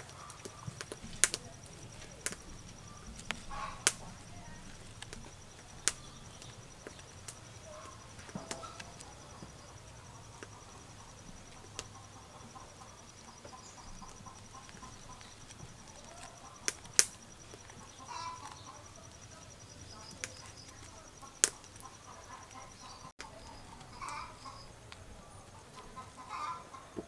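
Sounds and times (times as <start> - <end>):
sharp clicks: 0.0 - 18.8, 19.9 - 25.0
chicken clucking: 0.0 - 27.0.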